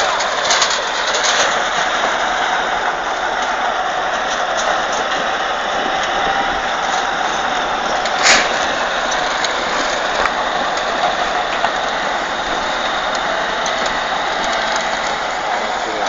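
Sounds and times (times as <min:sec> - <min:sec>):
bulldozer diesel engine running: 0:00.0 - 0:16.0
brief sharp noise: 0:08.2 - 0:08.6.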